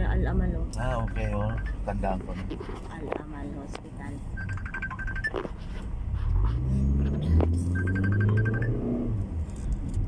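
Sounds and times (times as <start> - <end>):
phone trilling: 4.4 - 5.5, 7.8 - 8.8
car engine accelerating: 6.1 - 10.0.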